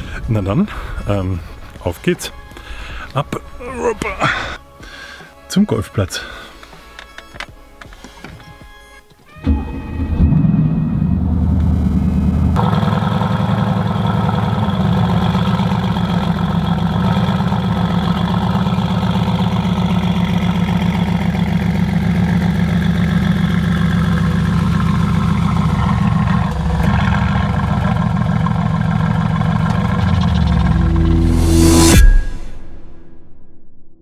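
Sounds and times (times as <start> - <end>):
car engine idling: 9.4 - 32.0.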